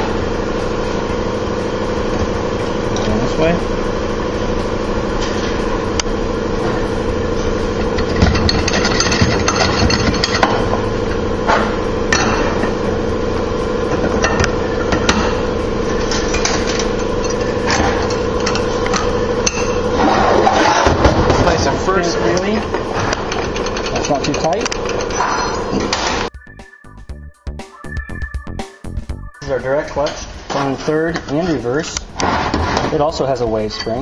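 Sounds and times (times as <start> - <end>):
steady machine hum: 0.0 - 34.0
metal drums knocking and clinking: 6.6 - 13.0, 13.9 - 26.3, 29.8 - 34.0.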